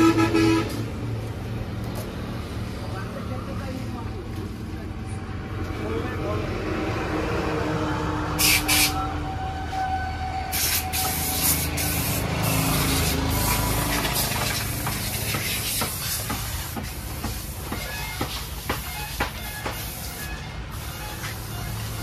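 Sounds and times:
pressure washer jet hissing: 8.4s - 9.0s, 10.5s - 22.0s.

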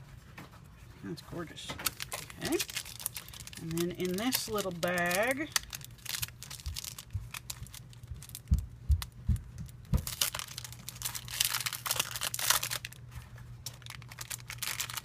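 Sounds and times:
cellophane bag crinkling: 1.8s - 9.1s, 10.0s - 15.0s
soft low thumps: 6.0s - 10.7s.

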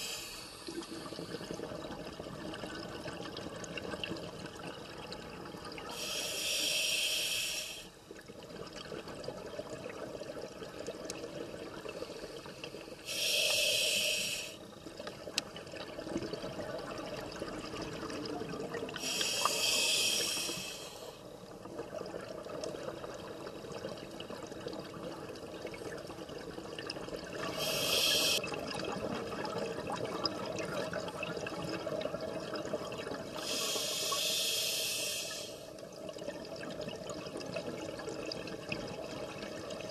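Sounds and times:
exhaled bubbles underwater: 0.0s - 6.3s, 8.0s - 13.3s, 14.0s - 34.2s, 35.7s - 39.9s
regulator low hiss: 5.9s - 7.9s, 13.0s - 14.6s, 19.0s - 21.2s, 27.5s - 28.4s, 33.4s - 35.7s.

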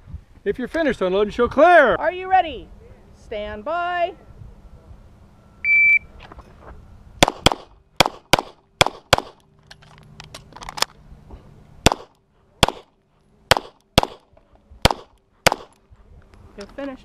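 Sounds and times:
pistol shots: 7.2s - 9.4s, 11.8s - 12.9s, 13.5s - 15.8s.

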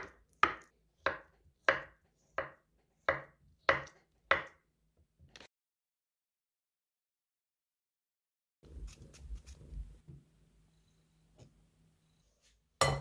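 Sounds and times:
knife chopping on wooden board: 0.0s - 4.6s.

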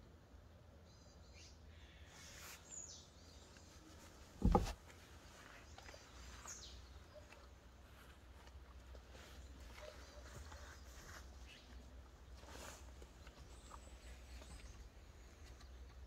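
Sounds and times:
faint bird chirps: 0.8s - 4.6s, 8.7s - 16.0s
dull thump: 4.4s - 4.8s.

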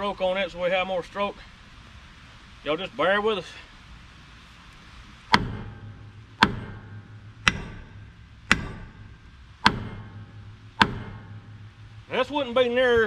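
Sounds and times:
hammer striking steel: 5.3s - 13.0s.

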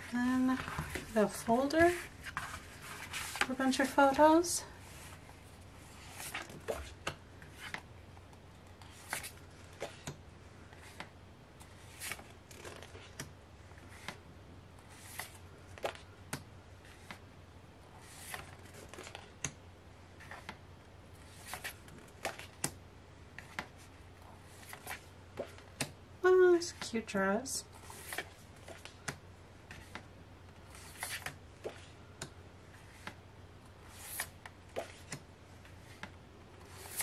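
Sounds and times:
photo prints flipped: 30.7s - 31.9s.

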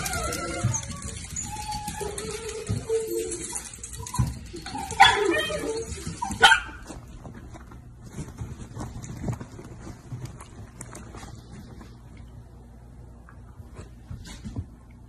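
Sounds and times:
dog barking: 6.4s - 6.8s.

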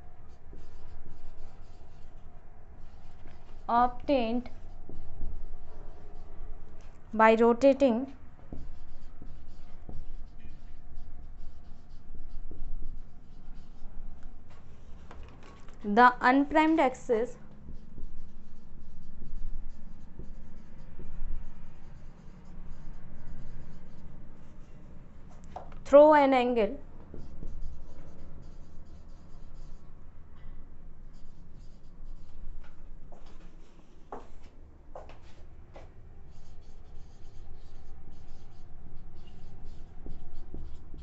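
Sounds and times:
steady low hum: 0.0s - 41.0s
marker pen writing on whiteboard: 0.1s - 41.0s.

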